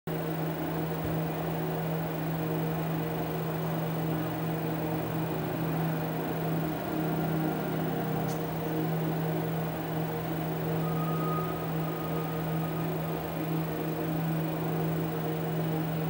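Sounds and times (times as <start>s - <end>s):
low electronic hum with tones: 0.1s - 16.0s
faint high chirp: 10.3s - 13.7s.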